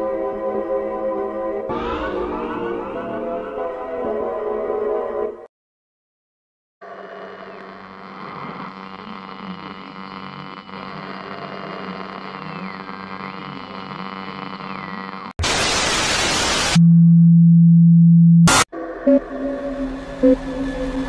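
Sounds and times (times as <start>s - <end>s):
white-noise static: 12.1s - 16.8s
loud low hum: 16.8s - 21.0s
eerie electronic drone: 18.4s - 21.0s.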